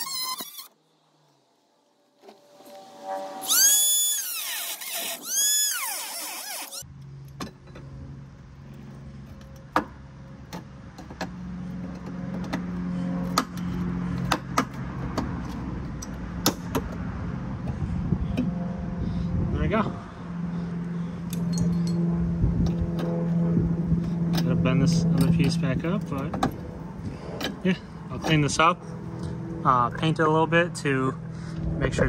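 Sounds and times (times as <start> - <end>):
cut-off tool cutting metal: 3.3 - 6.8
steady low hum: 6.8 - 32.0.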